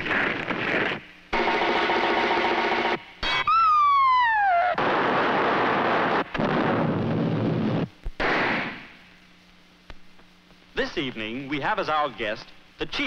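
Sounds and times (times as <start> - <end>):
loud explosive noise: 4.7 - 9.0
cartoon bang: 8.2 - 8.9.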